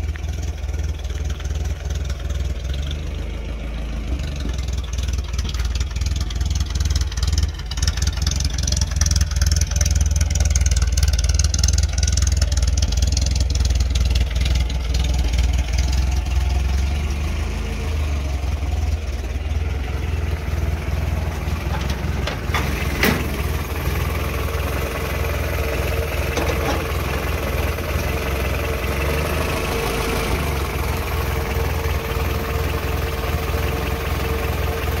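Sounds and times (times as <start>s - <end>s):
pickup engine idling: 0.0s - 35.0s.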